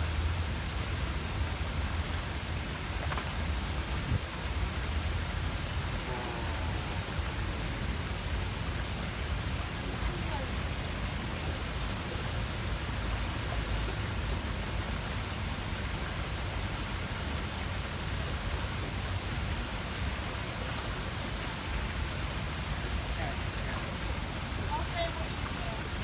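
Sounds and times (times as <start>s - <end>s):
steady hiss: 0.0s - 26.0s
low rumble: 5.0s - 9.4s.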